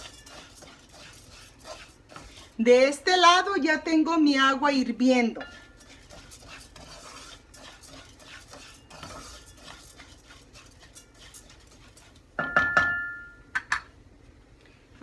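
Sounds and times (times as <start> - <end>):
wooden spatula scraping rice in pan: 0.0 - 2.9, 5.4 - 12.4.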